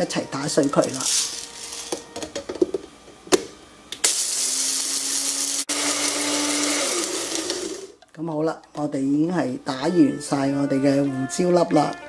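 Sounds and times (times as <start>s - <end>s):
blender motor grinding spices: 4.0s - 8.0s.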